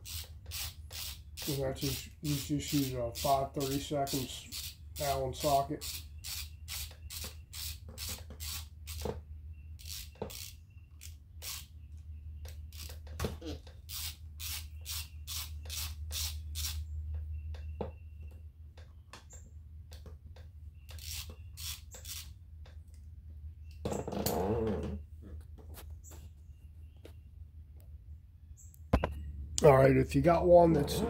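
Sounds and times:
socket ratchet clicking: 9.8 - 11.7, 20.9 - 22.4
steady low hum: 24.5 - 31.0.

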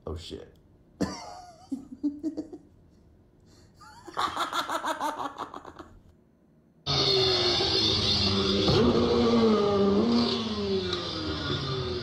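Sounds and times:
man laughing: 1.0 - 2.7, 3.8 - 6.0.

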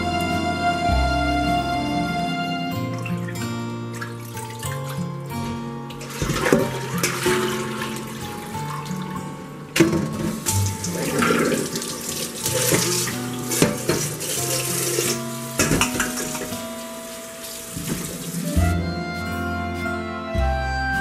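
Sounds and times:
soft background music: 0.0 - 21.0
water pouring into metal sink: 2.9 - 5.1, 5.9 - 18.4.

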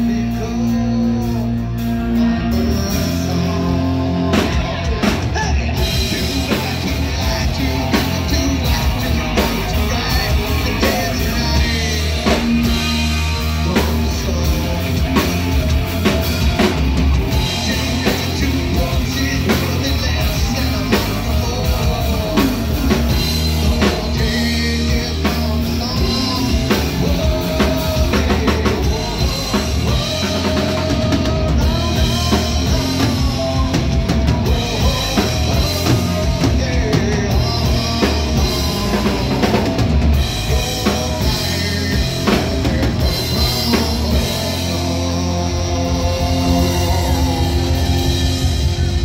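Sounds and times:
bass guitar: 0.0 - 49.0
drum kit: 0.0 - 49.0
electric guitar: 0.0 - 49.0
person singing: 0.0 - 49.0.

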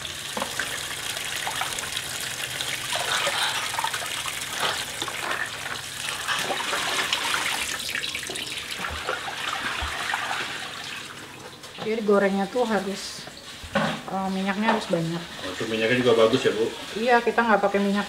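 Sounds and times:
tap water pouring into bucket: 0.0 - 11.9.

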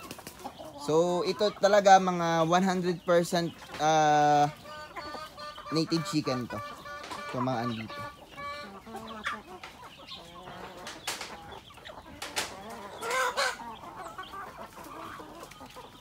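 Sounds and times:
chickens clucking: 0.0 - 16.0
chicken calling loudly: 12.5 - 15.9.

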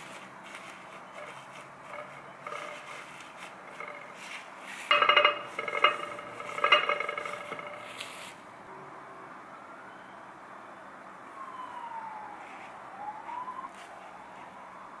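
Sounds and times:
paper towel rustling: 0.0 - 4.9
ceramic tray clattering: 1.2 - 8.0.

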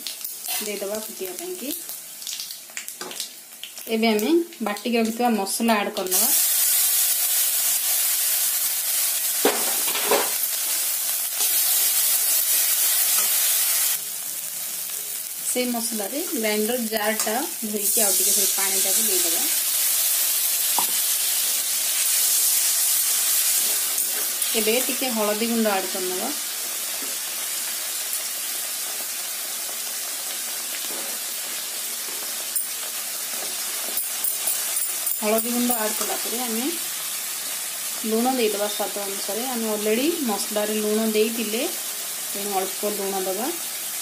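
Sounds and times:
paste sizzling in hot oil: 0.0 - 3.9, 6.0 - 44.0.

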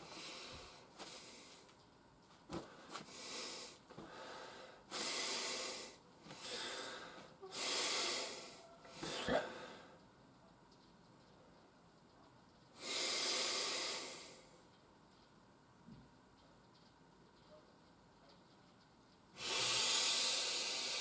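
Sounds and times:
man breathing deeply: 0.0 - 1.7, 2.6 - 10.0, 12.8 - 14.6, 19.4 - 21.0.

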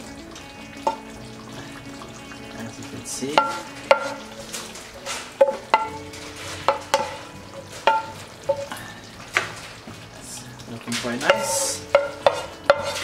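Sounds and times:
food sizzling: 0.0 - 13.0
wooden spoon scraping a pan: 3.4 - 8.7, 10.9 - 13.0.

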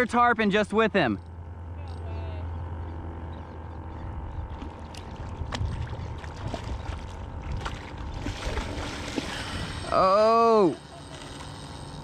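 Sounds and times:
steady low rumble: 0.0 - 10.2
water lapping against paddleboard: 3.9 - 10.0.

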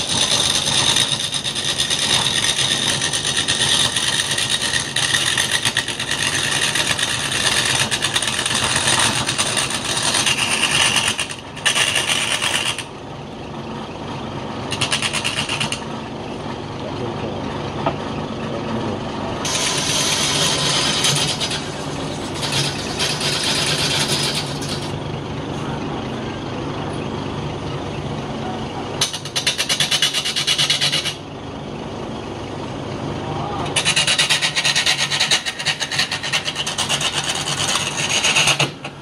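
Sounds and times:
chisel scraping spinning wood: 0.0 - 12.9, 14.7 - 15.9, 19.4 - 25.0, 29.0 - 31.2, 33.7 - 39.0
lathe motor humming: 0.0 - 12.9, 17.8 - 26.8.

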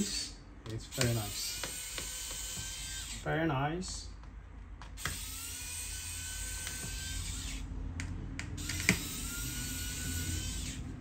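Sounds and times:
electric screwdriver motor whine: 1.2 - 3.2, 5.0 - 7.6, 8.6 - 10.8.

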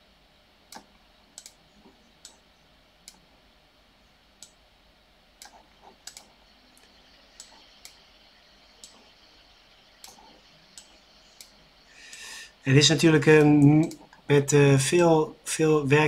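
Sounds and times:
computer mouse clicking: 0.7 - 2.4, 5.4 - 12.3, 13.4 - 14.2.

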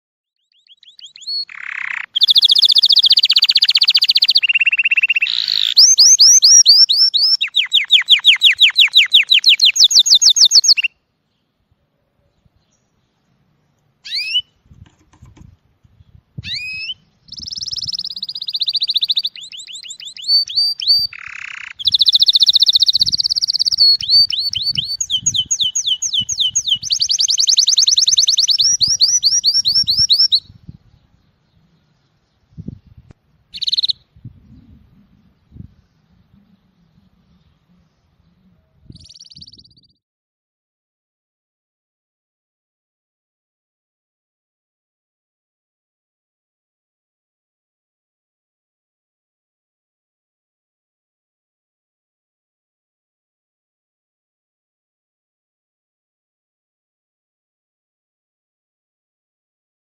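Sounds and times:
canary singing trills: 0.4 - 11.0, 14.0 - 15.2, 16.0 - 32.5, 33.5 - 40.0.

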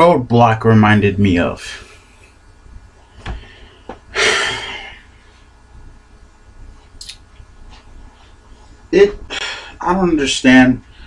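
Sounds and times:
soft thump: 3.2 - 4.0.

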